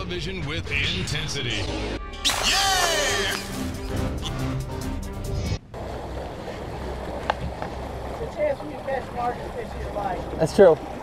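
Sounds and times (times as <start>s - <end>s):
theme music: 0.0s - 5.6s
sea water rushing: 5.7s - 11.0s.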